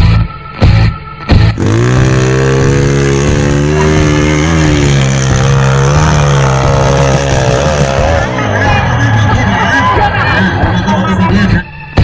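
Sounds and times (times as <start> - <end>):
dirt bike engine revving: 1.4 - 10.2.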